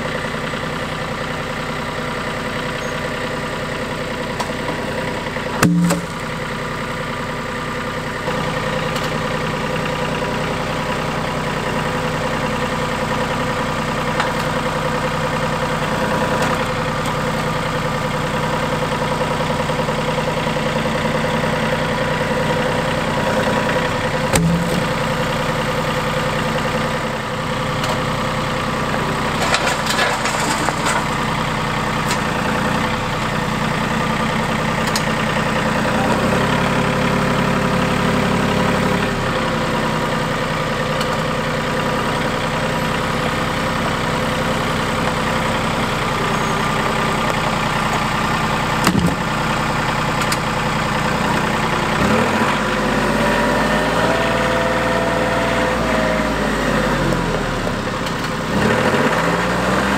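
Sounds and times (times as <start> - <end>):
diesel tractor engine running: 0.0 - 59.9
sharp knock: 5.6 - 6.1.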